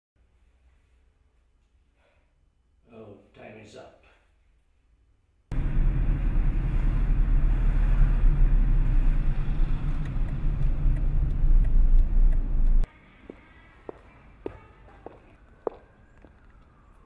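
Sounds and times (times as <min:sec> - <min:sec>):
car engine and road noise: 0:05.5 - 0:12.9.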